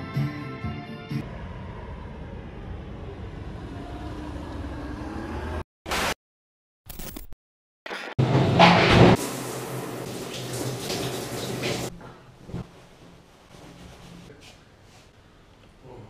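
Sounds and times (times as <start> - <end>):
car passing: 1.2 - 5.6.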